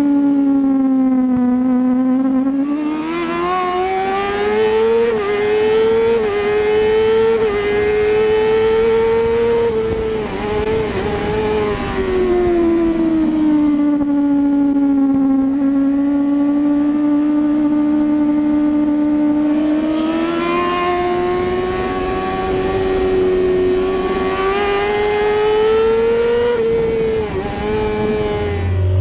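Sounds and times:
motorcycle engine revving high: 0.0s - 29.0s.

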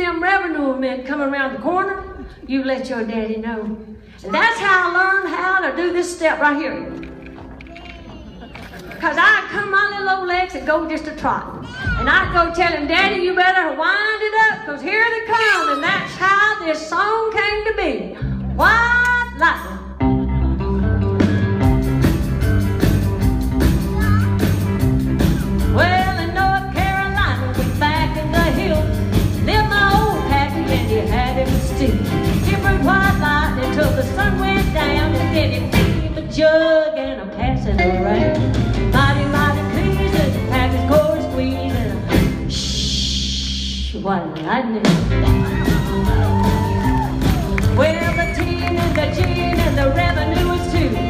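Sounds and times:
live rock band playing: 19.5s - 36.2s, 37.5s - 42.7s, 44.8s - 51.0s.

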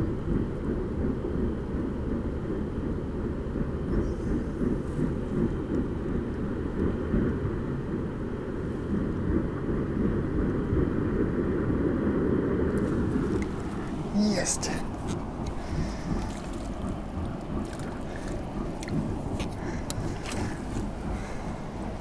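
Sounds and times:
low rumbling noise: 0.0s - 22.0s.

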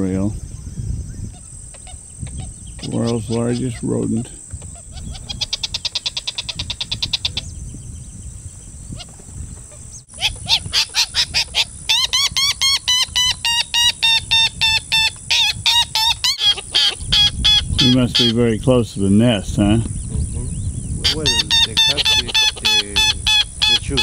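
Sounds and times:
bird alarm calls: 0.0s - 7.9s, 8.9s - 18.6s, 19.9s - 24.0s
bird ticking chatter: 1.3s - 7.5s, 10.1s - 18.6s, 19.8s - 24.0s.

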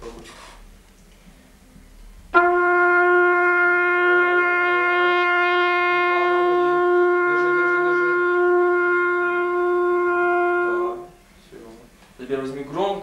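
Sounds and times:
trumpet playing long held note: 2.3s - 11.3s.

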